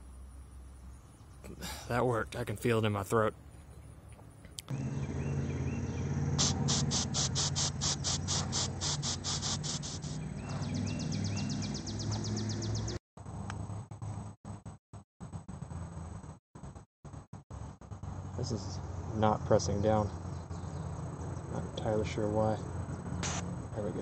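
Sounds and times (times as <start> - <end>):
insect ticking call: 3.8 - 12.6.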